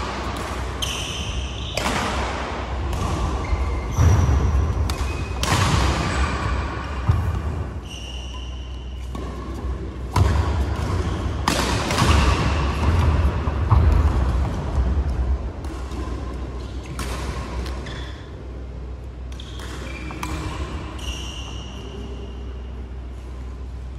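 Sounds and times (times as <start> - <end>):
racket striking shuttlecock: 0.0 - 7.8, 8.8 - 18.2, 19.2 - 21.0.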